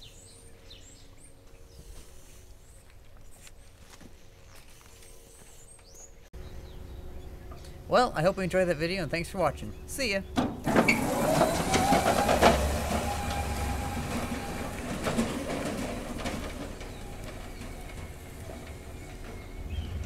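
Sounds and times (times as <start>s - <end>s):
machine rumbling and rattling: 6.4s - 20.0s
electric motor whine: 10.7s - 20.0s.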